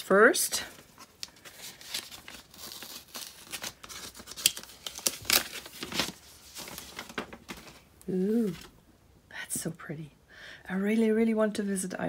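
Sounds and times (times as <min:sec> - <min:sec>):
packaging crinkling and rustling: 0:00.6 - 0:08.8.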